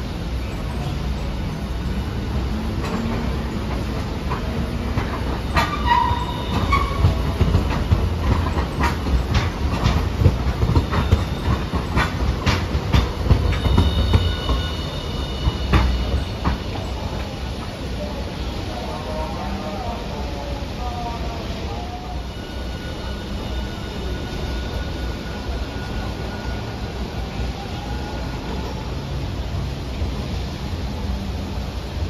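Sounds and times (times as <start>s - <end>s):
tram rumbling: 0.0s - 32.0s
wheels clicking over rail joints: 2.5s - 17.8s
high wheel squeals: 4.9s - 17.1s, 21.8s - 29.0s.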